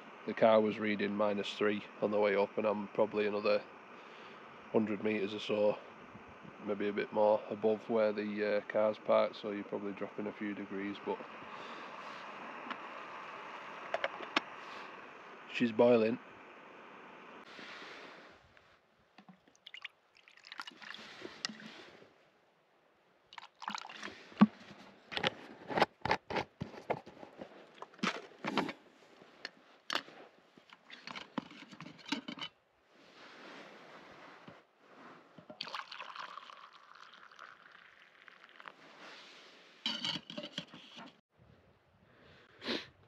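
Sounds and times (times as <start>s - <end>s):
boiled water pouring: 19.2s - 21.8s, 23.3s - 24.6s, 35.4s - 39.2s
liquid poured into a mug: 19.5s - 21.7s, 23.3s - 24.2s, 35.5s - 38.8s
metal pot and lid clattering: 31.1s - 32.5s, 39.9s - 40.9s.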